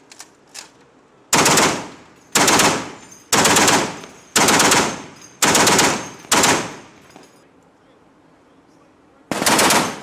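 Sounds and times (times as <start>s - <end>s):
heavy machine gun bursts: 1.3s - 6.8s, 9.3s - 10.0s.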